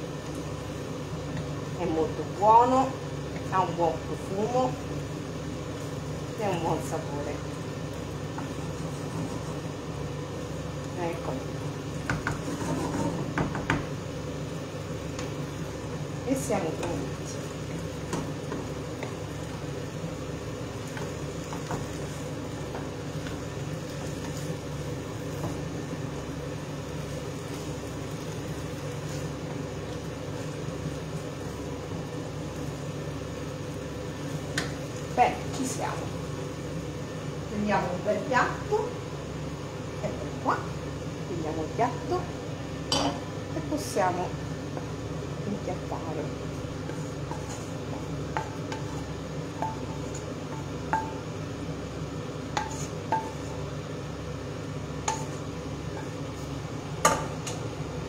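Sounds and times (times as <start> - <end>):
extractor fan droning: 0.0 - 58.0
steady low hum: 0.0 - 58.0
wooden spoon scraping a pan: 8.3 - 9.8, 12.0 - 13.6, 46.5 - 51.1, 52.5 - 53.6, 55.0 - 57.5.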